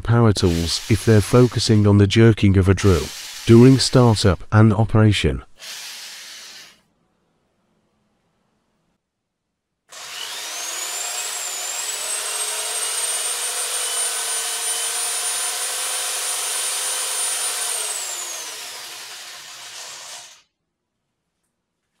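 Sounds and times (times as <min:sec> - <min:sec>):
electric drill whining: 0:00.5 - 0:01.8, 0:03.0 - 0:03.9, 0:05.6 - 0:06.8, 0:09.9 - 0:20.4.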